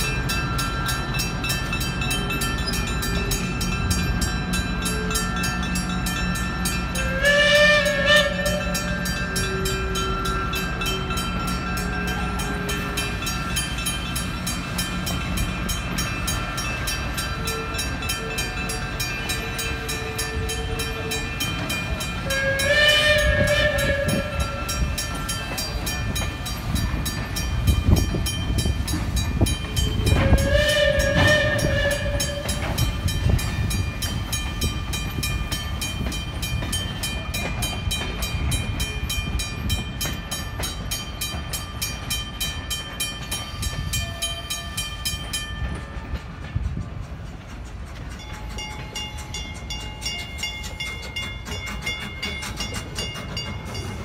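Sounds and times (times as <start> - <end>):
passing train rumbling: 0.0 - 54.0
railroad crossing bell ringing: 0.0 - 54.0
locomotive horn blasts: 6.9 - 11.2, 22.2 - 25.1, 30.0 - 32.6.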